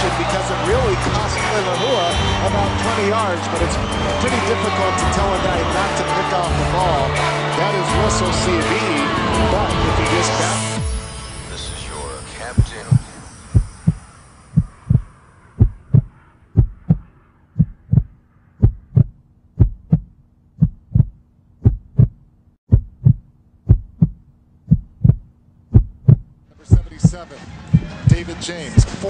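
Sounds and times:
heartbeat thumps: 0:12.6 - 0:14.0, 0:14.6 - 0:17.0, 0:17.6 - 0:28.2, 0:28.8 - 0:29.0.

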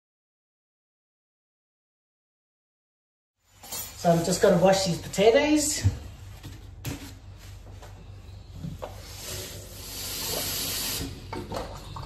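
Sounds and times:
tap water running into pot: 0:09.3 - 0:11.7.

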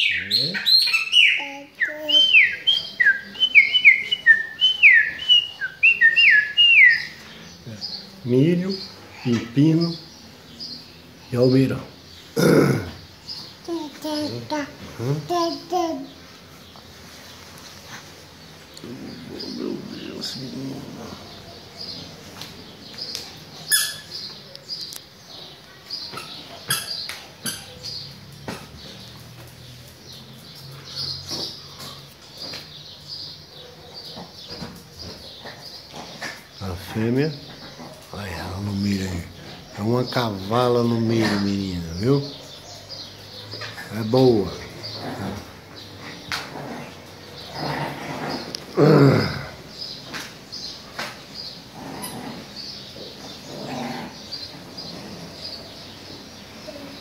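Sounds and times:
bird chirping: 0:00.0 - 0:57.0
blackbird singing whistled notes: 0:02.2 - 0:07.2.

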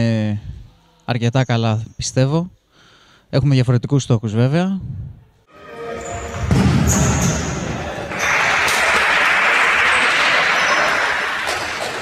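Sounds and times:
crowd cheering indoors: 0:05.5 - 0:12.0.

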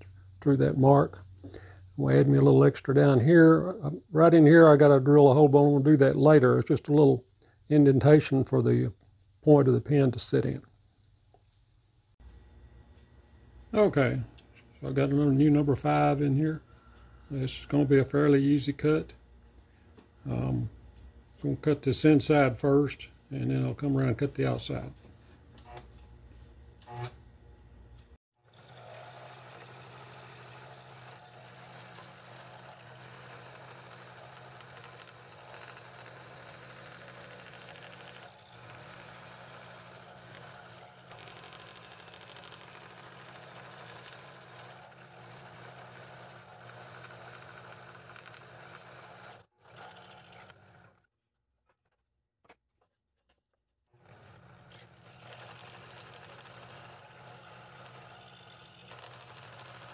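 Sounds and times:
motor hum: 0:12.2 - 0:51.1, 0:54.0 - 0:59.9
scroll saw cutting wood: 0:28.4 - 0:51.1, 0:54.0 - 0:59.9.

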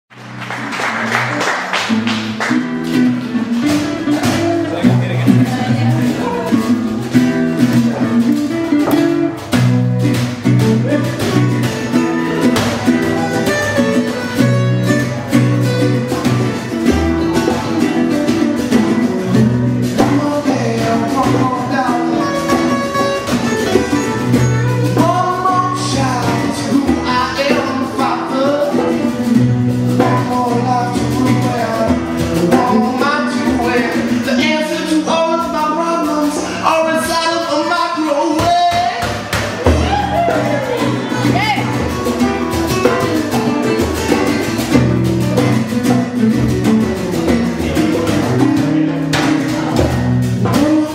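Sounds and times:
acoustic guitar strumming chords: 0:00.1 - 0:50.9
hand drum strikes: 0:02.1 - 0:34.4, 0:38.4 - 0:50.9
person singing: 0:19.8 - 0:29.3, 0:30.0 - 0:44.2, 0:49.3 - 0:50.9.

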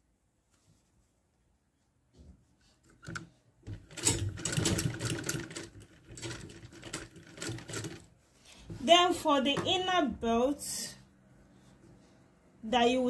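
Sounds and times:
sewing machine stitching: 0:03.0 - 0:08.1.

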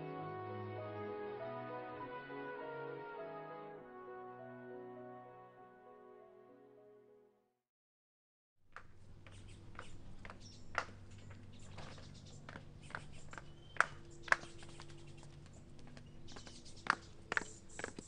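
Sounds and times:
sandals clicking on stone steps: 0:08.7 - 0:18.0.

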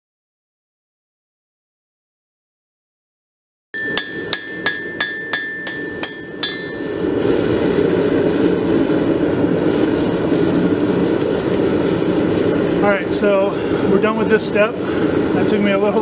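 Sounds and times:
hammer ringing on anvil: 0:03.8 - 0:07.2
steady rushing noise: 0:03.8 - 0:16.0.

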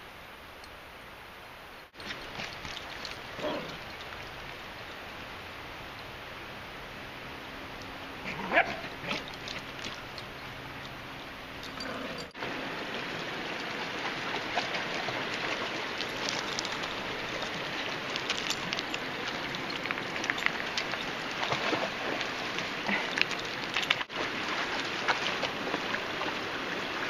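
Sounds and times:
shallow rocky creek running: 0:00.1 - 0:27.0
dog barking: 0:08.3 - 0:09.2
dog splashing through water: 0:13.6 - 0:27.0.

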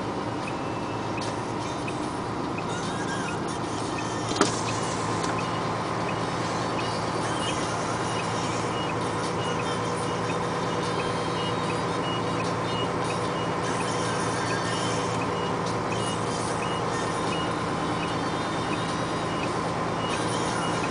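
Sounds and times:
diesel truck engine running: 0:00.0 - 0:20.9.

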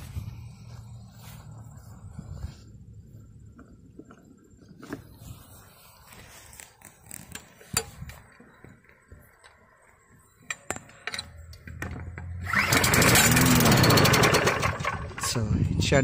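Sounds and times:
lawn mower engine running: 0:11.4 - 0:15.7.

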